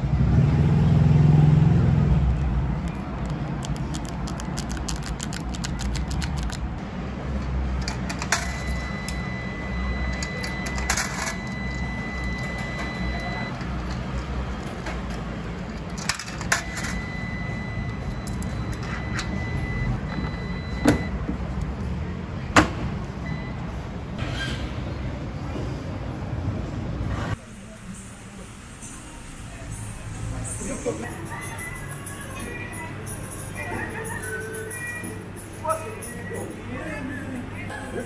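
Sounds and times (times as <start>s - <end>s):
high-pitched electronic beep: 8.4s - 13.6s, 16.6s - 21.2s.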